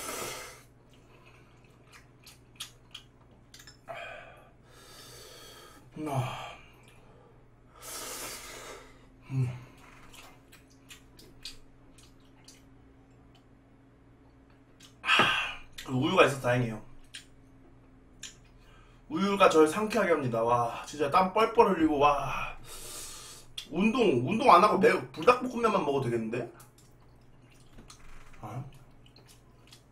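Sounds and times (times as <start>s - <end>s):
wet chewing: 0.7s - 3.9s, 9.8s - 13.5s, 26.6s - 29.9s.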